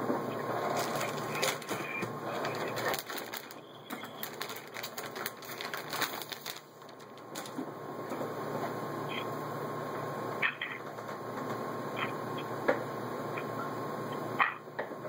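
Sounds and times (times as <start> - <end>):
steady low hum: 0.0 - 15.0
plastic packaging crinkling: 0.5 - 7.6.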